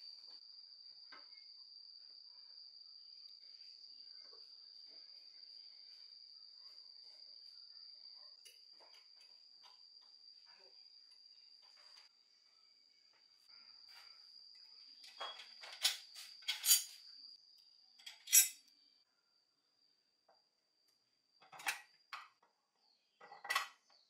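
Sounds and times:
faint high whine: 0:00.0 - 0:21.6
metal parts clinking: 0:15.3 - 0:17.0, 0:18.0 - 0:18.6.

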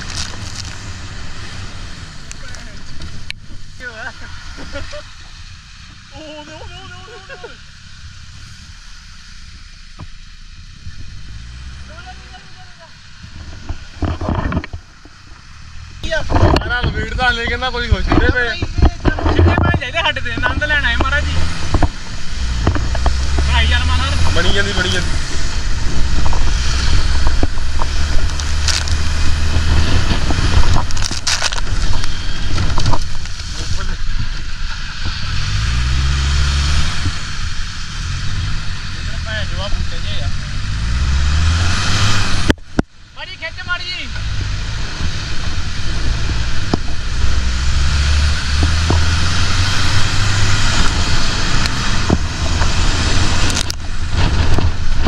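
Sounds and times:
jeep engine running: 0:00.0 - 0:55.0
wind noise on microphone: 0:13.2 - 0:39.1, 0:44.1 - 0:55.0.

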